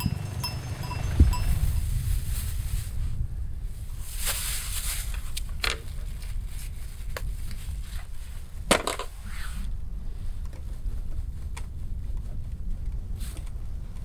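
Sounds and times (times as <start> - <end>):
low rumble: 0.0 - 8.7
plastic bag rustling: 1.6 - 3.2, 3.8 - 8.4.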